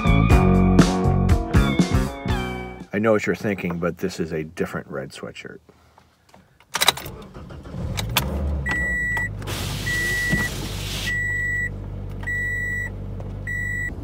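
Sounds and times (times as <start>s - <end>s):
dashboard warning chime beeping: 8.6s - 14.0s.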